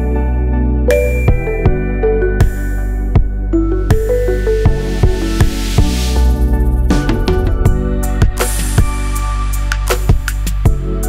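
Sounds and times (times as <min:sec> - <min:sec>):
electronic music with steady beat: 0:00.0 - 0:11.0
hissing sweep: 0:04.3 - 0:08.8.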